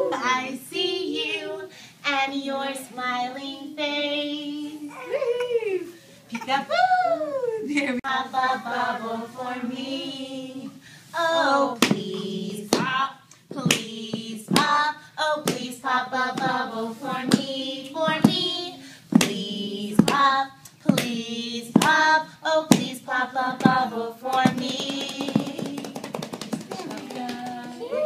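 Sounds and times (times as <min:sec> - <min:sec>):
adults singing: 0:00.0 - 0:05.0, 0:08.0 - 0:28.0
rhythmic hand claps: 0:11.8 - 0:13.0, 0:13.6 - 0:18.6, 0:19.2 - 0:27.8.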